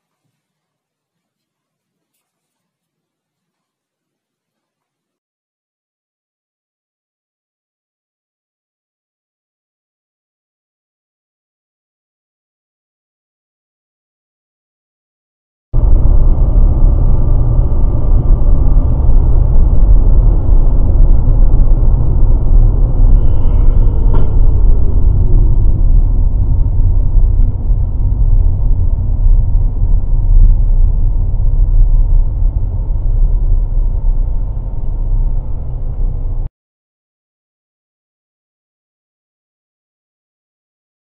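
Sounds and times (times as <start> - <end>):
car engine rumble inside cabin: 15.8 - 36.5
road noise: 15.8 - 36.5.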